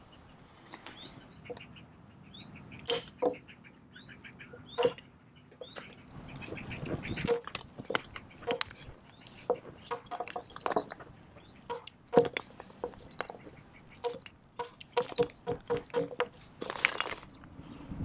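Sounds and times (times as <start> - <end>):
hatchet knocking on wood: 14.0 - 16.3.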